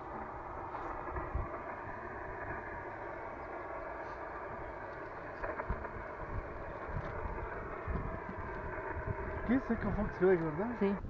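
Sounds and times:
radio receiver hiss: 0:00.1 - 0:11.0.

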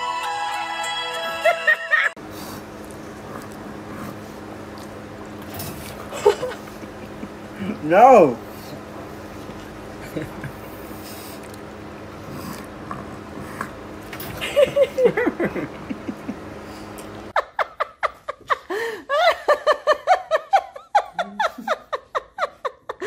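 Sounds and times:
people chuckling: 0:01.3 - 0:02.2, 0:06.0 - 0:07.8, 0:10.0 - 0:11.0, 0:14.3 - 0:23.0.

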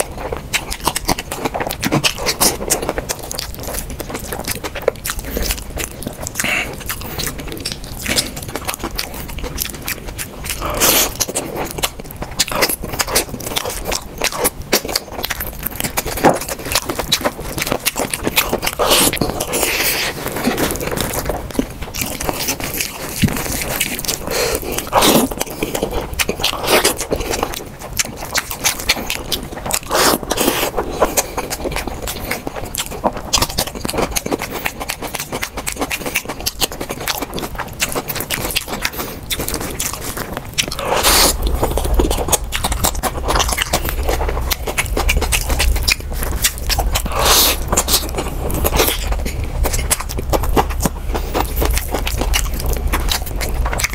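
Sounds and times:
chewing and mouth noises: 0:00.0 - 0:53.9
fingers mixing saucy rice: 0:00.0 - 0:53.9
steady low hum: 0:00.0 - 0:53.9.

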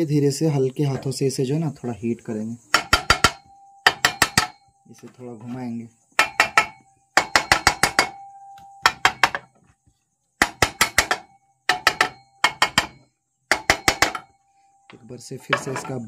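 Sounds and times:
hammer tapping metal: 0:02.7 - 0:04.7, 0:06.1 - 0:09.6, 0:10.4 - 0:14.4.

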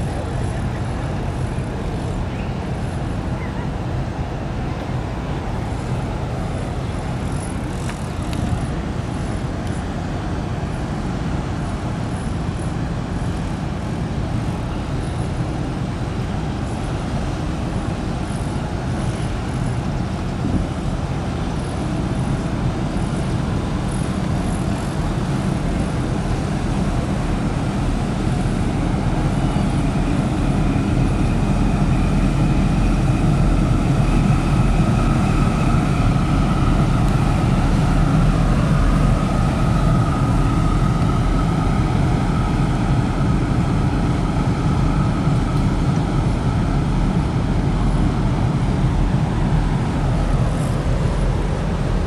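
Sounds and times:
ship engines rumbling: 0:00.0 - 0:52.0.

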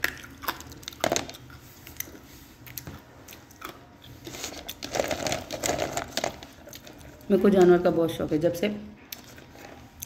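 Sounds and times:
person crunching and chewing: 0:00.0 - 0:07.3.

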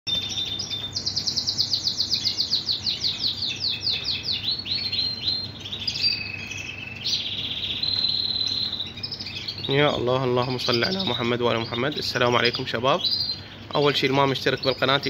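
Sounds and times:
canary singing: 0:00.1 - 0:15.0.

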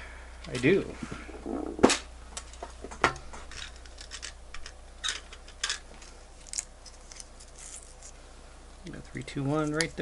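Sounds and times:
scratchy packaging rustles: 0:06.4 - 0:08.2.

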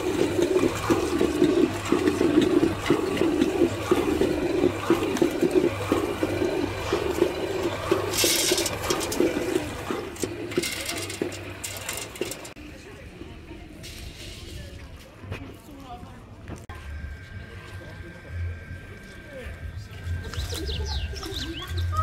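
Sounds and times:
kernels rattling into hopper: 0:00.0 - 0:12.6
paste churning and sloshing: 0:00.0 - 0:12.6
electric stone mill humming: 0:00.0 - 0:13.6, 0:16.7 - 0:22.0.

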